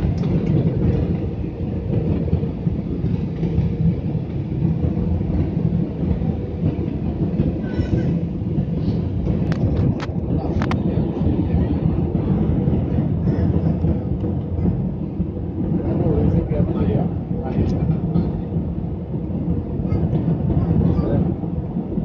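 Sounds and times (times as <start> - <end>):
jet engine and airflow rumble: 0.0 - 22.0.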